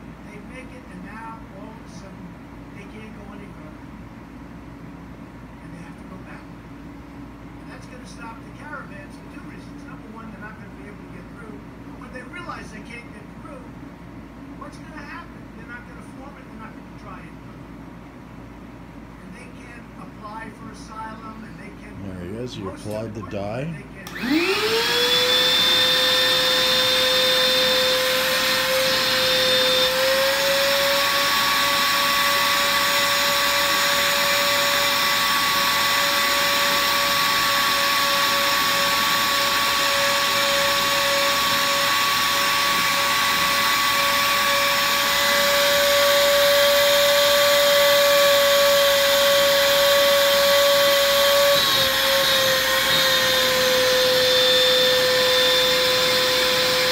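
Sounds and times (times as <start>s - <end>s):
shop vacuum running: 21.9s - 56.9s.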